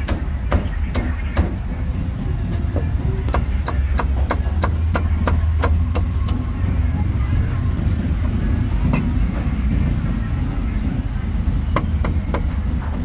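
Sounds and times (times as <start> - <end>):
steady low rumble: 0.0 - 13.0
cleaver chopping meat: 3.3 - 6.1.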